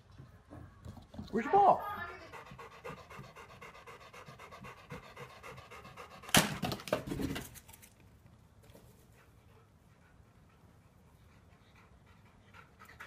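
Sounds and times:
dog panting: 0:01.8 - 0:06.6, 0:09.0 - 0:13.0.

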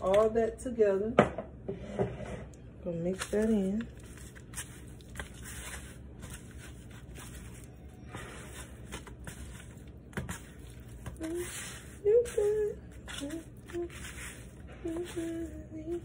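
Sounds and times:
hands rubbing raw chicken: 0:03.2 - 0:16.0.

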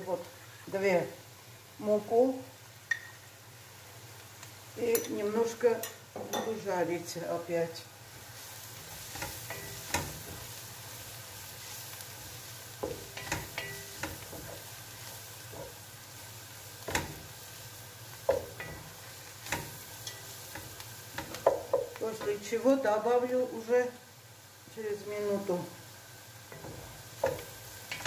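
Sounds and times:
vegetables sizzling in butter: 0:00.0 - 0:28.0
spatula knocking against pot: 0:21.2 - 0:22.0.

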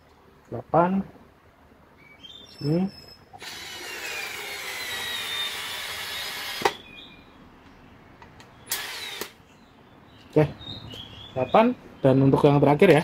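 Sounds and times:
cordless screwdriver whining: 0:03.4 - 0:06.8, 0:08.7 - 0:09.4.

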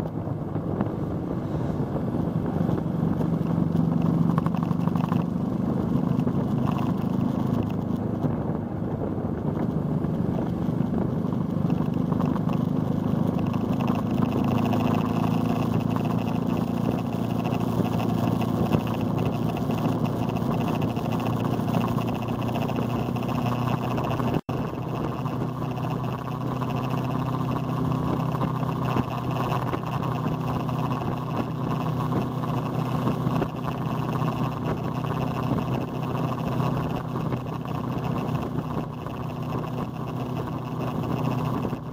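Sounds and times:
motorcycle engine cruising: 0:00.0 - 0:41.9
wind rushing over microphone: 0:00.0 - 0:41.9.

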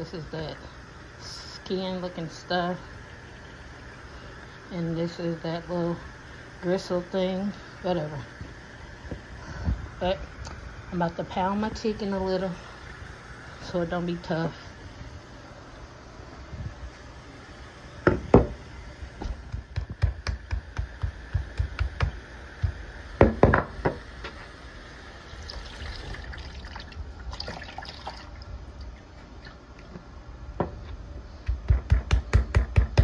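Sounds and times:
meat mallet pounding on cutting board: 0:19.5 - 0:23.6, 0:31.5 - 0:33.0.

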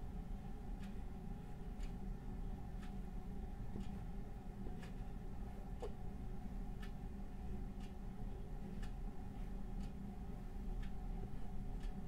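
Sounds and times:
low room hum: 0:00.0 - 0:12.0
clock ticking: 0:00.8 - 0:01.0, 0:01.8 - 0:05.2, 0:06.8 - 0:10.0, 0:10.6 - 0:12.0.

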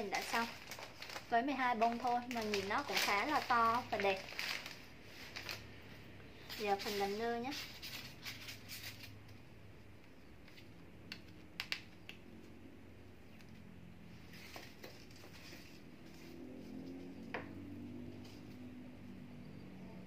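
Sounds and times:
faint low hum: 0:00.0 - 0:20.0.

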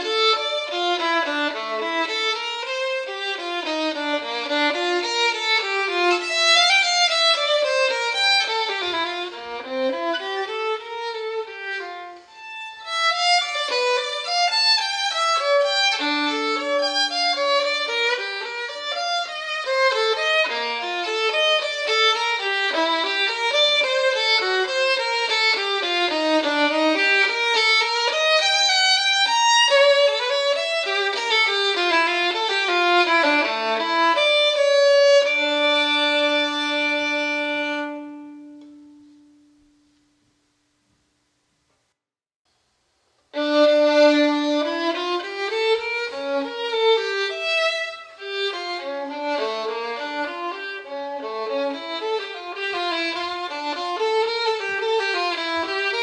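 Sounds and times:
solo violin fast passages: 0:00.0 - 0:39.0, 0:43.3 - 0:56.0.

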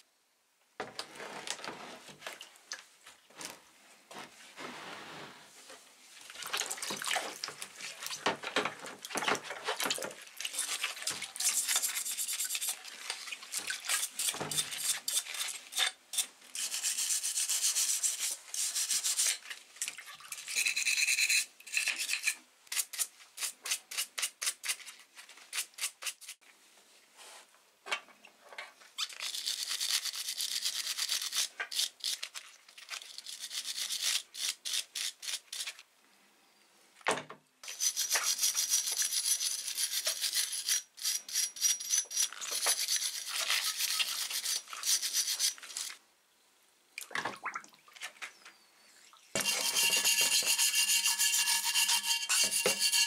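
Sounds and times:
brushes scrubbing metal in water: 0:09.0 - 0:16.0, 0:37.6 - 0:45.9, 0:49.4 - 0:53.0
wire brush on metal part: 0:11.4 - 0:12.8, 0:49.4 - 0:53.0.

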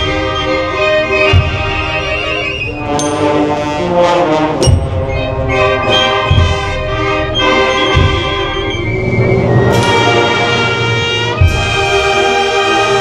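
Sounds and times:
brass band playing a slow march: 0:00.0 - 0:13.0
low drum beat: 0:04.5 - 0:08.7.

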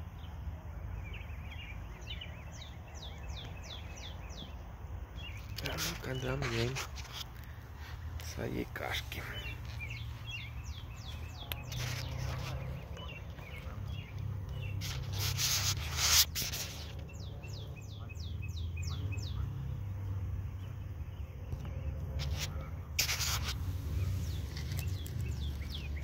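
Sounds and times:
close rubbing and rustling: 0:05.2 - 0:18.9, 0:21.5 - 0:26.0.

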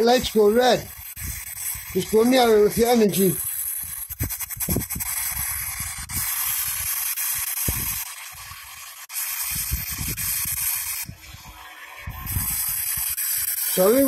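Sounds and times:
radio static hiss: 0:00.0 - 0:04.2, 0:10.8 - 0:14.0.

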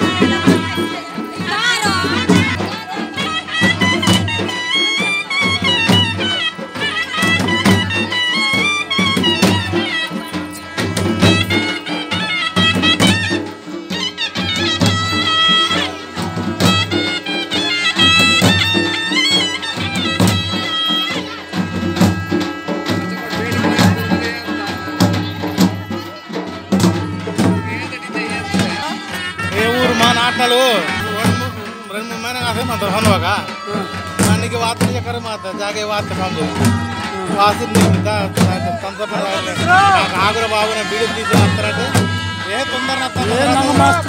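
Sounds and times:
ornamented folk melody: 0:00.0 - 0:44.0
steady drum beats: 0:00.0 - 0:44.0.

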